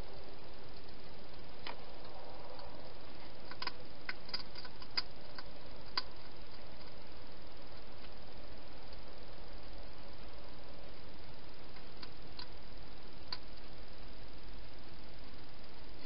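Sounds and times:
steady hiss: 0.0s - 16.0s
hedgehog feeding clicks: 0.7s - 8.2s, 11.6s - 13.8s.

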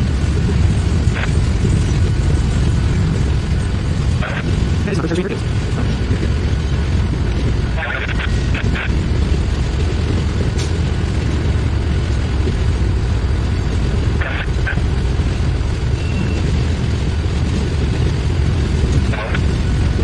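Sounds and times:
diesel locomotives rumbling: 0.0s - 20.0s
wind buffeting microphone: 0.0s - 20.0s.

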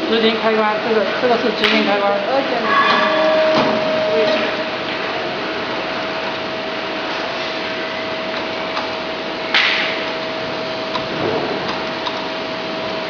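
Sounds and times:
machine humming and whining: 0.0s - 13.0s.

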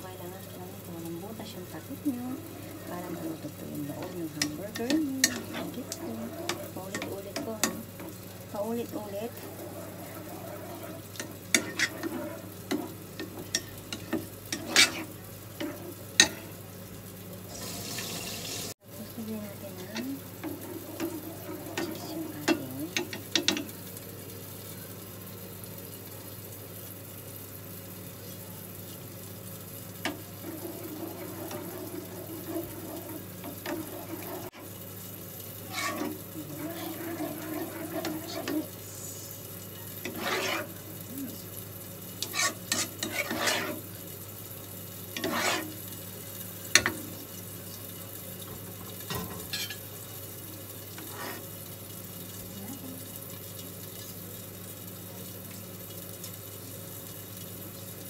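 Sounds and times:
metal ladle scraping frying pan: 2.4s - 16.6s, 19.8s - 23.6s, 30.0s - 34.7s, 35.6s - 38.8s, 39.8s - 40.9s, 42.2s - 43.9s, 45.1s - 45.8s, 49.1s - 49.8s, 51.0s - 51.5s
ladle tapping pan: 3.0s - 8.3s, 30.0s - 34.7s, 35.6s - 38.8s, 39.9s - 40.8s, 42.2s - 43.8s.

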